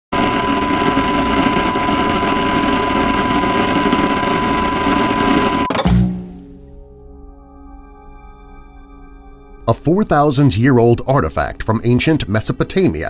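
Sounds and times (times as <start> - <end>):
steady high beep: 0.2 - 5.7.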